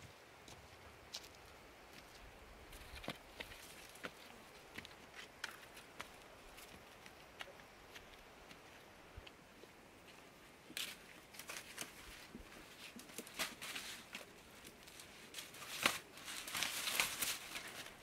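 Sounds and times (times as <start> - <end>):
maize husks rustling in basket: 10.8 - 18.0.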